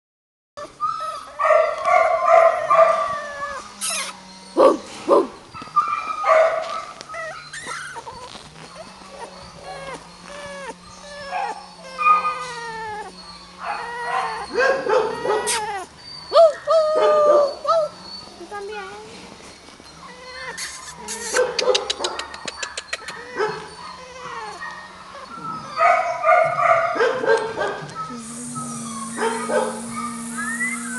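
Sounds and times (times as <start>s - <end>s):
puppies whining: 0.6s - 30.9s
puppy yips: 0.8s - 18.3s, 20.0s - 28.1s.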